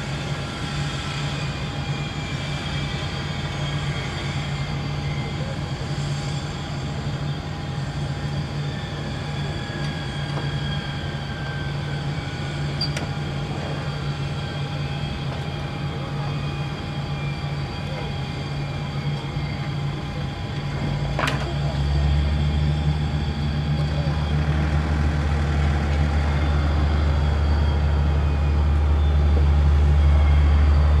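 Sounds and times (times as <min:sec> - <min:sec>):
low mechanical drone: 0:00.0 - 0:31.0
turbine whine falling in pitch: 0:00.0 - 0:31.0.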